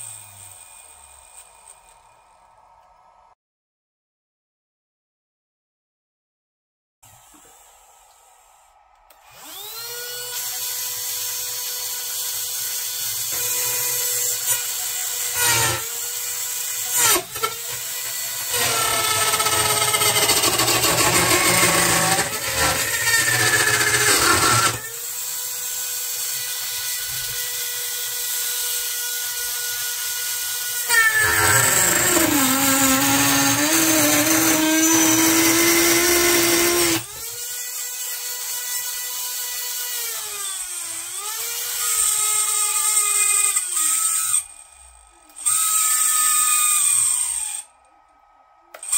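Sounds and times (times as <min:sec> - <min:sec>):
cutter rasping into wood: 0:09.4 - 0:29.2, 0:30.3 - 0:44.4.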